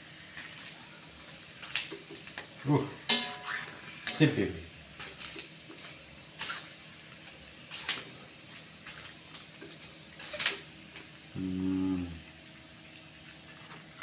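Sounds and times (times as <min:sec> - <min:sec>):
crackers frying in oil: 0:00.0 - 0:14.0
metal spatula scraping a wok: 0:03.0 - 0:04.3.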